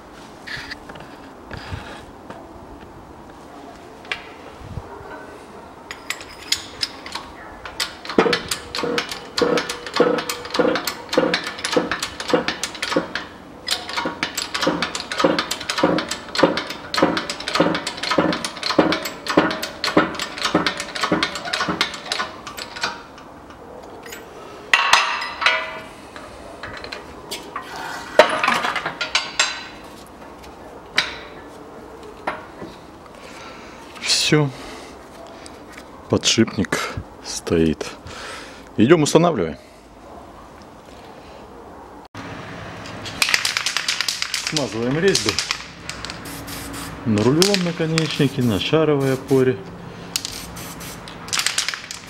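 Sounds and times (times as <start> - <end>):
steel part clattering knocks: 5.9 - 25.9, 28.2 - 29.8
hydraulic press clanking: 5.9 - 29.8.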